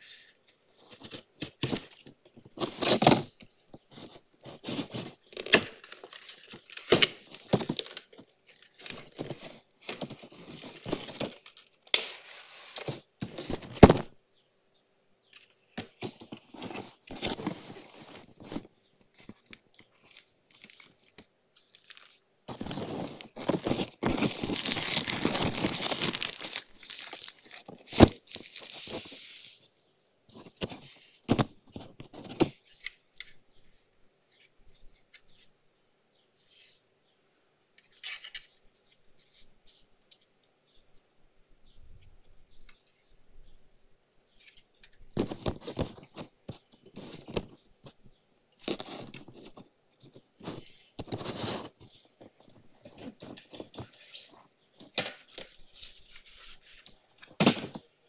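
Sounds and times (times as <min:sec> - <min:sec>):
cardboard scraping and tearing: 0:02.5 - 0:14.1, 0:16.0 - 0:18.7, 0:21.8 - 0:29.6, 0:50.3 - 0:51.9
plastic bag crinkling: 0:02.6 - 0:12.0, 0:20.0 - 0:29.2.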